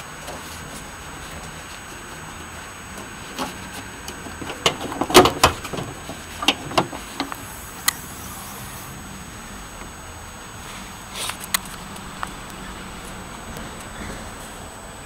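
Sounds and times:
car bonnet unlatching and opening: 2.3s - 7.6s.

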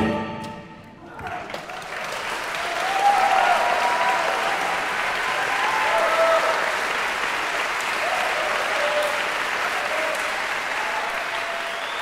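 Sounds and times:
audience applauding: 1.0s - 12.0s.

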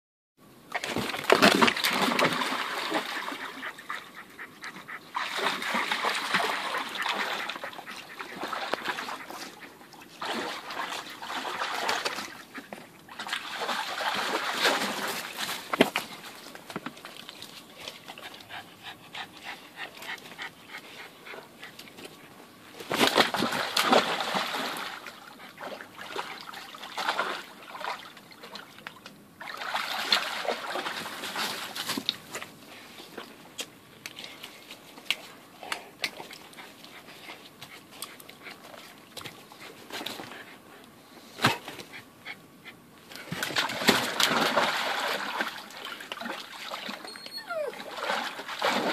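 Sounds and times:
dog splashing in water: 0.7s - 3.8s, 5.2s - 9.3s, 10.2s - 12.4s, 13.1s - 16.3s, 22.8s - 28.6s, 29.4s - 31.9s, 43.2s - 47.1s, 47.8s - 48.9s.

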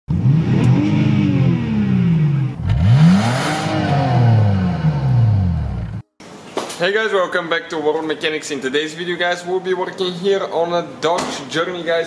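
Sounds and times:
car engine revving: 0.1s - 6.0s.

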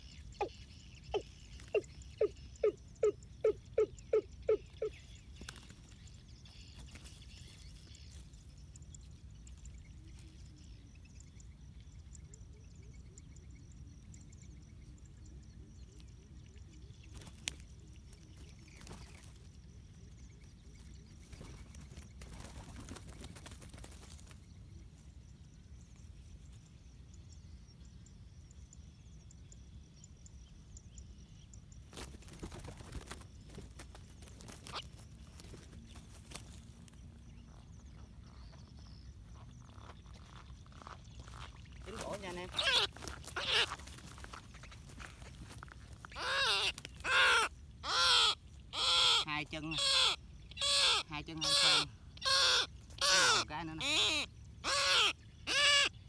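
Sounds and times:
faint bird chirps: 0.0s - 56.0s
wings flapping in dry grass: 5.3s - 8.5s, 17.0s - 20.0s, 20.6s - 24.6s, 31.8s - 37.0s, 39.8s - 47.2s.

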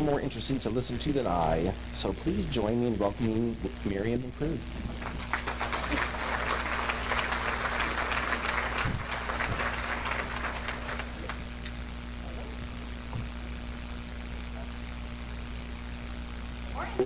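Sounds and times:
low steady hum: 0.0s - 17.0s
audience applauding: 5.0s - 11.5s.

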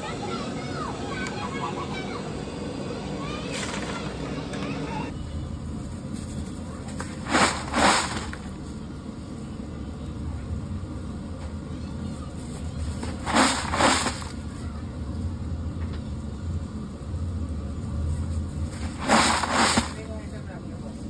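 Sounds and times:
fried potato chips rustling and crunching: 5.7s - 8.7s, 12.5s - 14.6s, 17.9s - 20.3s.

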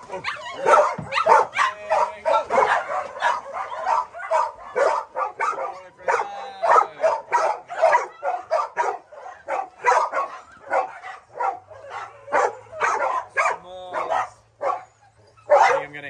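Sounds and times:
dogs barking: 0.0s - 16.0s.

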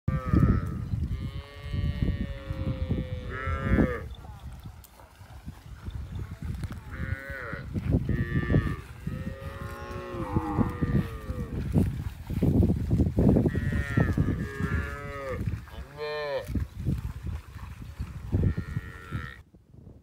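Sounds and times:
cows mooing: 0.1s - 4.2s, 6.9s - 11.6s, 13.5s - 16.6s, 18.3s - 19.4s.

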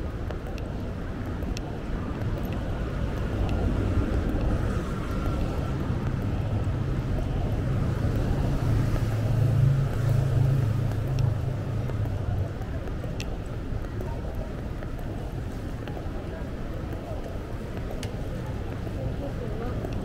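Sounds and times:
city street traffic: 0.0s - 20.0s
vehicle engine humming nearby: 0.0s - 20.0s.

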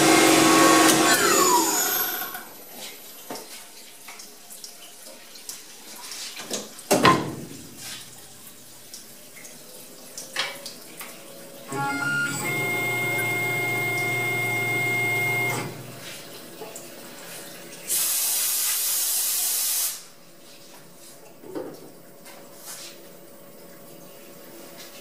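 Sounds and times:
milling machine whining: 0.0s - 2.5s, 11.7s - 16.0s
loud spraying hiss: 17.9s - 20.0s.

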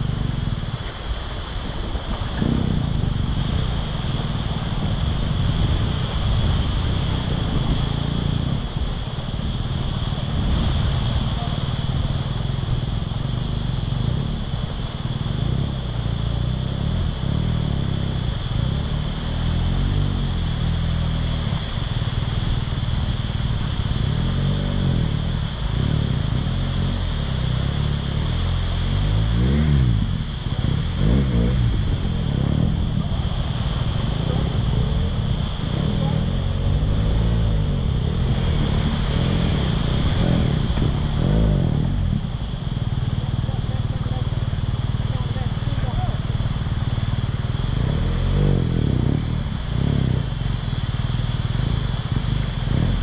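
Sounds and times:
motorcycle engine revving: 0.0s - 53.0s.

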